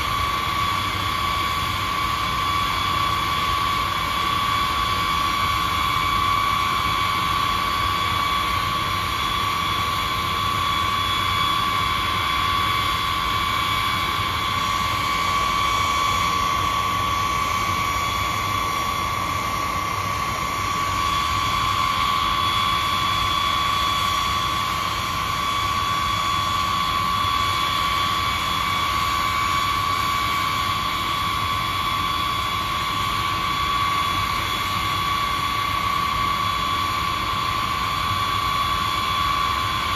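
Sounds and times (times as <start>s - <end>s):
jet engines whining: 0.0s - 39.9s.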